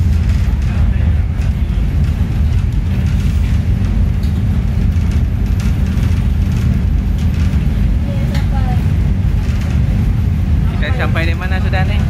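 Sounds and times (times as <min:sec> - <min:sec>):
train rumbling on track: 0:00.0 - 0:12.0.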